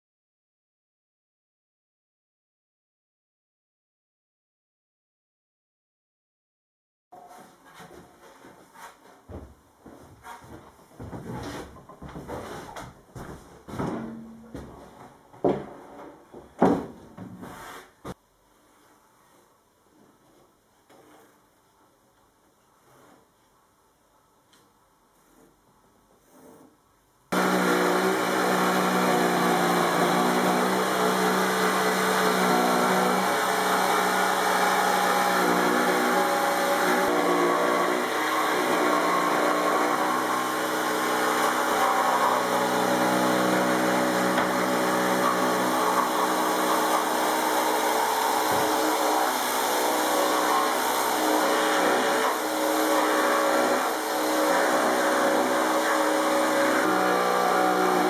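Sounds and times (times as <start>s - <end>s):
jigsaw cutting wood: 27.3s - 58.0s.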